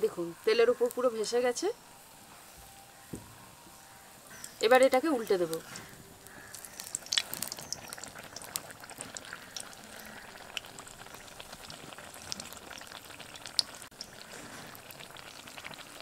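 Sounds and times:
food deep-frying in hot oil: 0:04.5 - 0:16.0
oil crackles and pops: 0:04.6 - 0:16.0.

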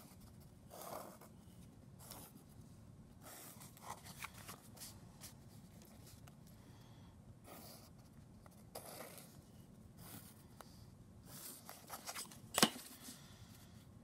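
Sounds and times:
paper rustling: 0:03.5 - 0:06.3
pencil scraping on paper: 0:07.5 - 0:10.4.

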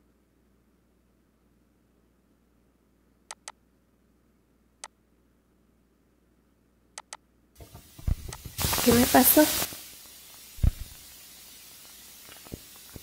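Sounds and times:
faint low hum: 0:00.0 - 0:08.6
computer mouse clicks: 0:03.3 - 0:03.6, 0:07.0 - 0:08.5.

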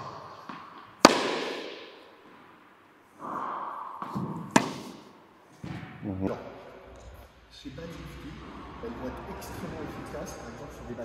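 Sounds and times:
racket hitting tennis ball: 0:00.0 - 0:06.0.

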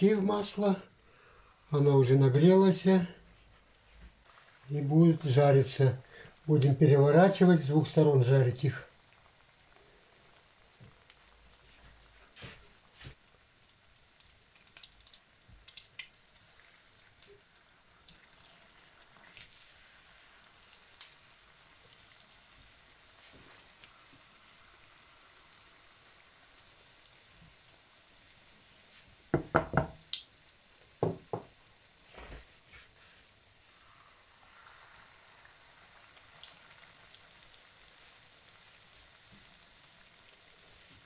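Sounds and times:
hot oil popping: 0:03.6 - 0:41.0
utensils knocking on pan: 0:29.4 - 0:30.0, 0:31.0 - 0:31.5.

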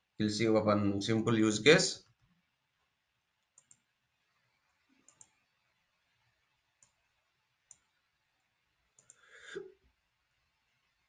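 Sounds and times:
computer mouse clicks: 0:03.4 - 0:03.9, 0:05.0 - 0:05.5, 0:06.8 - 0:07.0, 0:07.7 - 0:07.9, 0:09.0 - 0:09.2.

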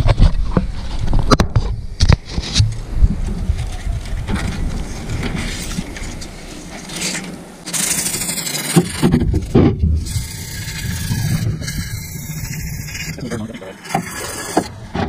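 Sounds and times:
abrasive cloth rasping on metal: 0:05.5 - 0:14.7.

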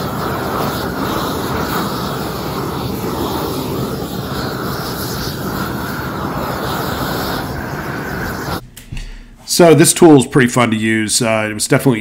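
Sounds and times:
propane torch flame rushing: 0:00.0 - 0:08.6.

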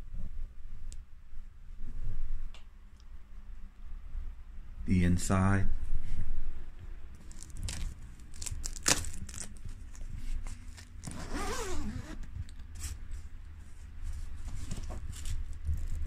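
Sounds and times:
leather suit rustling and scraping: 0:07.2 - 0:12.2.

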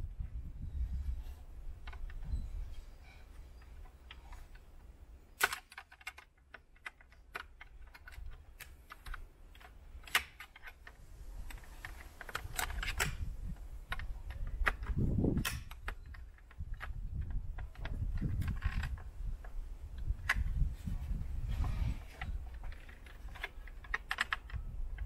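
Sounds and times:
plastic clicks and rattles: 0:03.6 - 0:20.6, 0:22.0 - 0:25.0
sharp plastic snaps: 0:05.3 - 0:20.6, 0:22.2 - 0:25.0.

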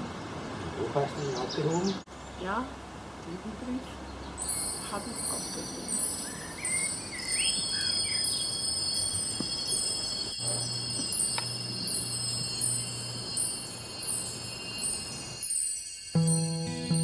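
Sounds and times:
wind chimes ringing: 0:04.2 - 0:17.0.

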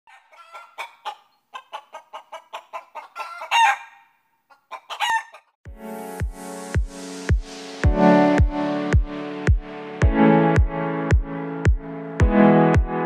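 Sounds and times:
hen calling: 0:00.1 - 0:05.5
hen clucking: 0:00.1 - 0:05.6.

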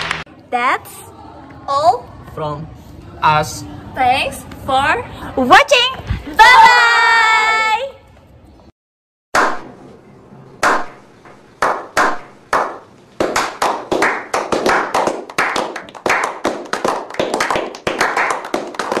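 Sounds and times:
group clapping: 0:00.0 - 0:00.3, 0:10.6 - 0:11.0, 0:11.6 - 0:19.0.

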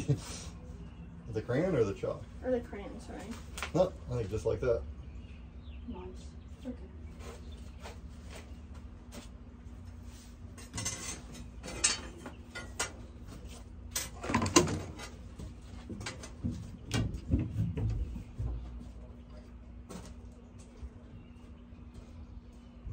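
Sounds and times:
tools tapping and scraping metal: 0:10.5 - 0:18.0.

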